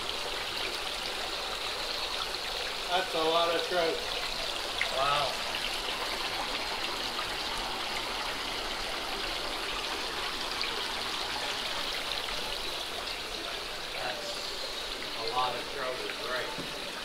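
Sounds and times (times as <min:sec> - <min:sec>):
water jetting and splashing into tank: 0:00.0 - 0:17.0.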